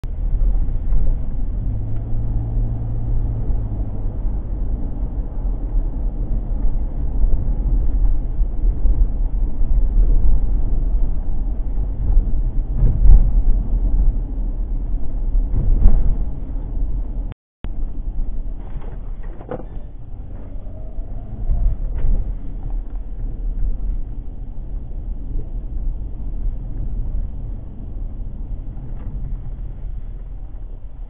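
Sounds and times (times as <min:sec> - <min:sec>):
car engine and tyre rumble: 0:00.0 - 0:31.0
faint engine hum: 0:00.0 - 0:31.0
knocks from road bumps: 0:15.5 - 0:16.6.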